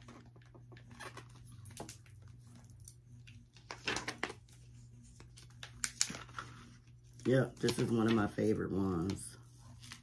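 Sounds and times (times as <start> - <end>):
low steady hum: 0.0 - 10.0.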